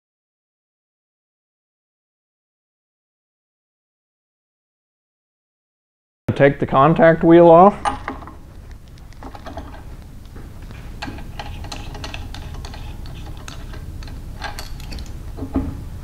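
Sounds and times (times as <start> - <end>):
metallic clicks of wrench: 11.0 - 15.2.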